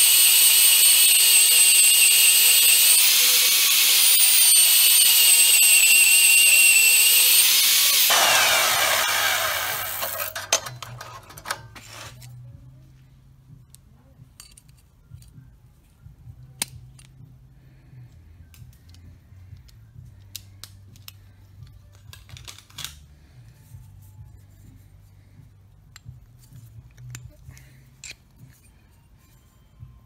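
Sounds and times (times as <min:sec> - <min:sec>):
metal horseshoe pieces clicking: 0:09.8 - 0:12.4, 0:13.7 - 0:15.4, 0:16.4 - 0:17.2, 0:25.8 - 0:29.6.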